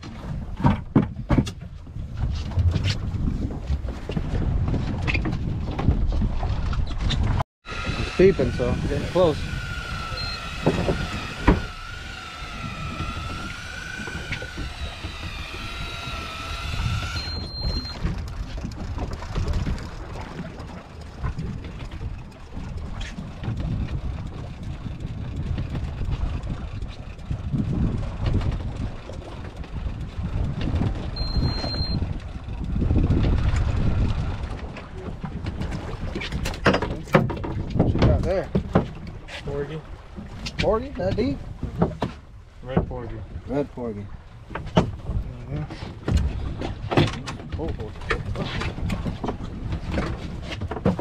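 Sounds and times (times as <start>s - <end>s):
water around a boat: 0.0s - 51.0s
wind: 0.0s - 51.0s
electric fishing reel motor whining: 7.7s - 18.0s.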